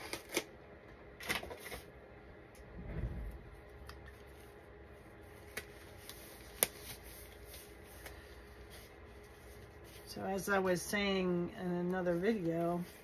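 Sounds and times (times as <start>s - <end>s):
low rumble: 2.6s - 4.0s.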